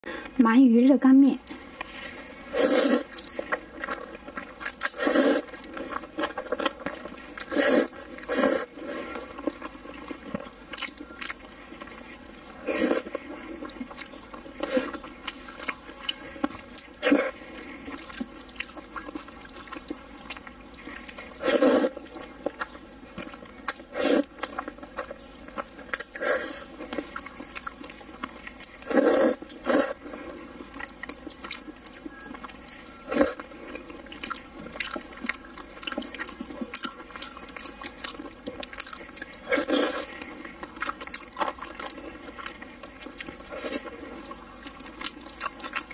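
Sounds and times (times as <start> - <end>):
wet chewing and lip smacks: 1.4 - 45.9
slurping noodles: 1.8 - 9.6, 12.2 - 13.8, 16.9 - 19.8, 20.8 - 22.2, 23.9 - 24.4, 28.8 - 30.6, 39.4 - 40.6.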